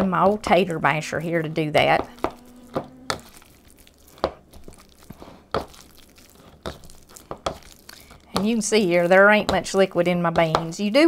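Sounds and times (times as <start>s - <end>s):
potato masher mashing beans: 0.0s - 11.0s.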